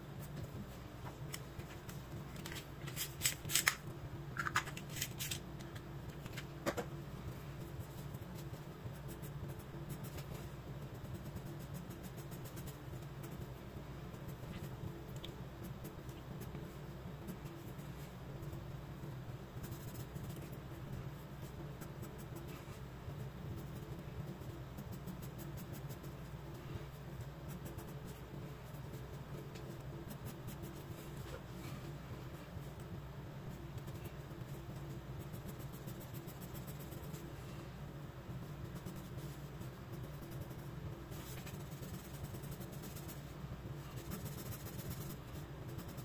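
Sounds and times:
steady low hum: 0.0 - 46.0
pencil scratching on paper: 33.6 - 37.4, 38.5 - 46.0.

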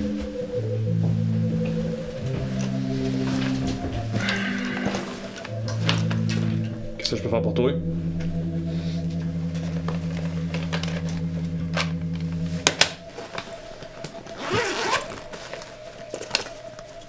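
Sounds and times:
low music drone: 0.0 - 17.0
zipper rasping: 14.4 - 15.5.

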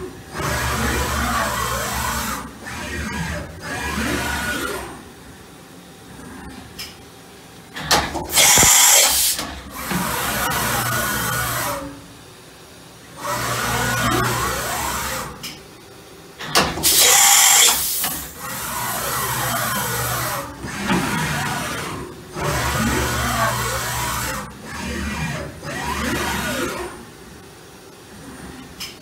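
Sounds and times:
machine motor whines: 0.0 - 5.0, 7.8 - 12.0, 13.1 - 15.6, 16.4 - 27.2
rushing burst of tool change: 8.3 - 9.5, 16.8 - 19.7.

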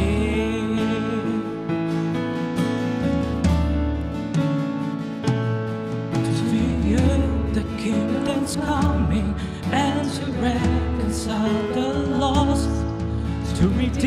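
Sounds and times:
man singing lead: 0.0 - 2.1, 6.2 - 14.0
acoustic guitar: 0.0 - 14.0
keyboard: 0.0 - 14.0
electronic drums: 2.4 - 14.0.

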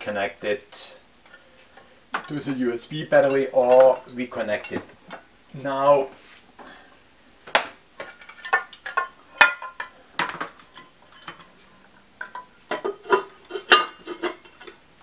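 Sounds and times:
ceramic parts clinking: 8.0 - 11.6, 12.2 - 14.8.

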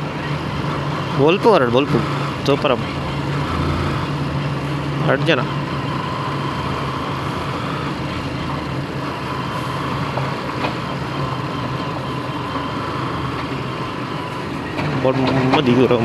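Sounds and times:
motorcycle engine drone: 0.0 - 16.0
wind and road noise: 0.0 - 16.0.

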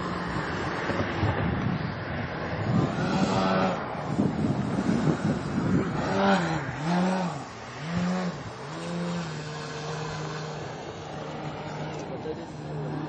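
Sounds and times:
model plane engine: 2.7 - 13.0.

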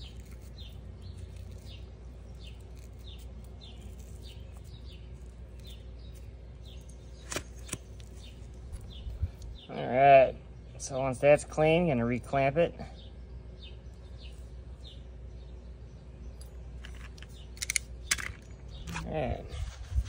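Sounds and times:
small bird chirping: 0.0 - 10.9
steady low rumble: 7.9 - 20.0
sharp clicks: 16.4 - 19.0.

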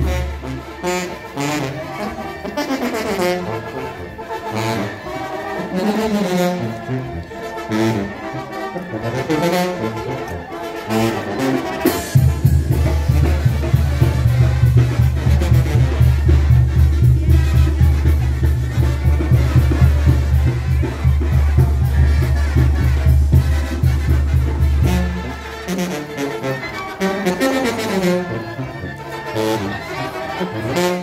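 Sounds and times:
trombones and trumpets melody: 0.0 - 31.0
loud low brass bass: 11.8 - 26.4.

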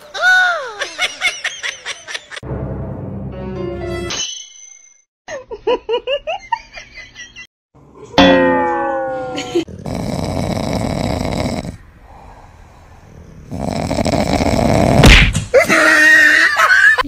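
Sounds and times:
short falling-pitched sound: 8.1 - 9.6
pitched sound: 8.2 - 9.8
dog snoring: 9.8 - 12.5, 13.1 - 15.0.

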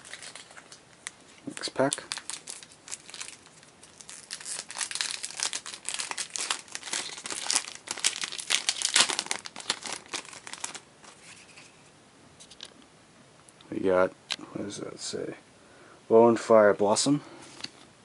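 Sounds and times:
foil pack crinkling and tearing: 0.0 - 0.8, 1.6 - 11.2.

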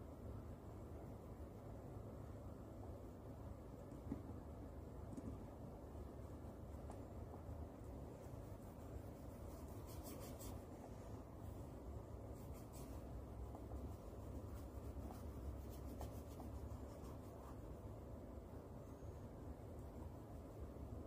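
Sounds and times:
paintbrush strokes on paper: 5.8 - 21.0.

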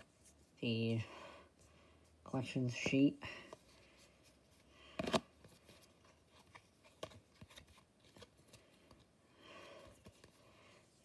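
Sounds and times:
paper cards rustling: 3.6 - 9.1, 9.7 - 10.6.

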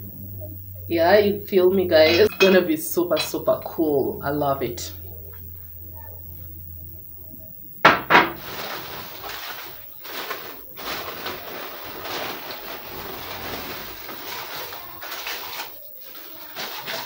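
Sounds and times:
paper wrapping rustling: 8.1 - 17.0
shopping bag crinkling: 8.2 - 17.0
sharp crackles: 8.3 - 17.0.

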